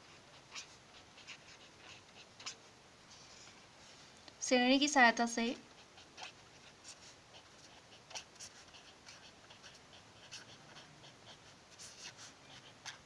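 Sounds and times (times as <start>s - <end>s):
pen scratching on paper: 0.1s - 2.6s, 6.0s - 13.0s.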